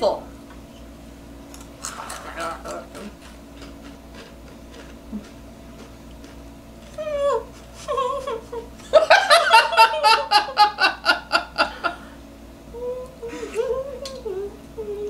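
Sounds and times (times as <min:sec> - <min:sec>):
high-pitched whimpering cries: 0:07.0 - 0:08.7
loud laughter: 0:07.8 - 0:12.1.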